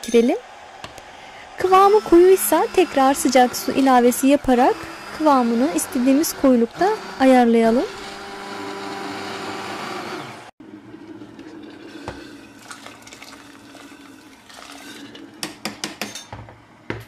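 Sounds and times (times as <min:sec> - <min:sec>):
immersion blender running: 0:00.8 - 0:15.4
blender knocking on metal pot: 0:01.6 - 0:09.8, 0:15.4 - 0:17.0
soup sloshing: 0:11.3 - 0:15.4.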